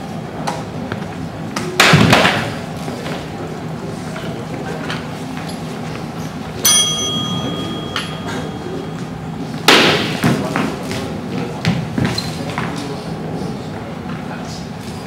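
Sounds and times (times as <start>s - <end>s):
bell ringing: 6.6s - 9.3s.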